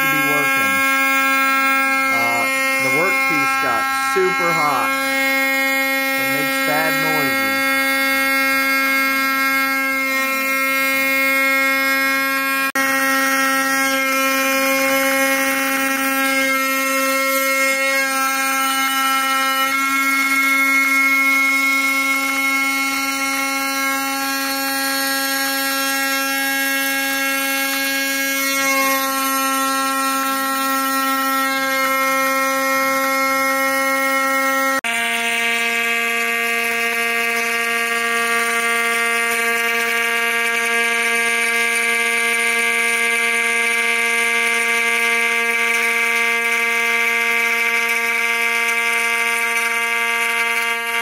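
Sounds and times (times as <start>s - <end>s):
spindle whine: 0.0s - 12.7s
harsh metal cutting noise: 0.0s - 51.0s.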